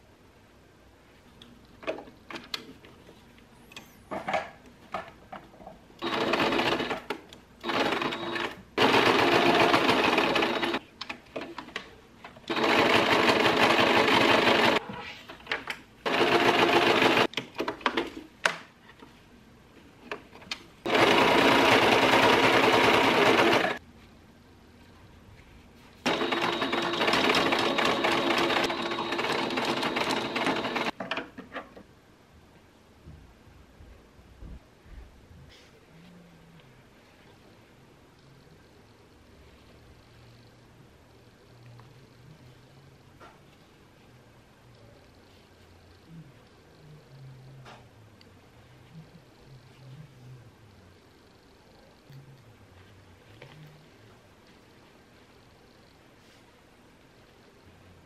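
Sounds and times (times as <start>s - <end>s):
sewing machine stitching: 6.0s - 10.8s, 12.5s - 14.8s, 16.1s - 17.3s, 20.9s - 23.8s, 26.1s - 30.9s.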